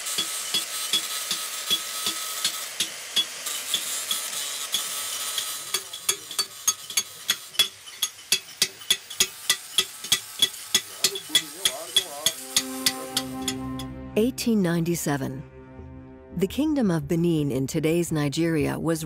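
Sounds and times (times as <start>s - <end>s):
abrasive grinding hiss: 0.0s - 13.6s
tool tapping on metal: 0.0s - 13.6s.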